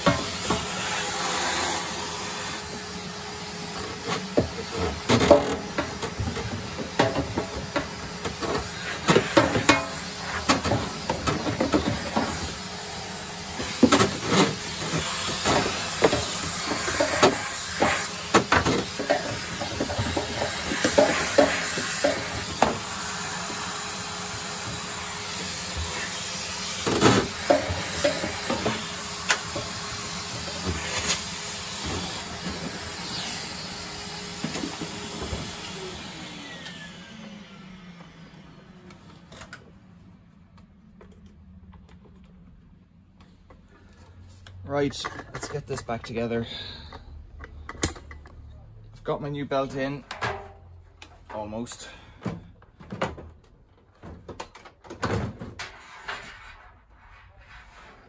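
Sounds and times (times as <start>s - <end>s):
vacuum cleaner running: 0.0s - 40.0s.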